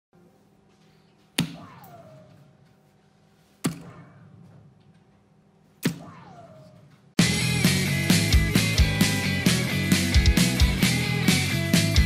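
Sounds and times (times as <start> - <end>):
darts hitting electronic dartboard: 1.3 - 2.6, 3.6 - 4.8, 5.8 - 7.1.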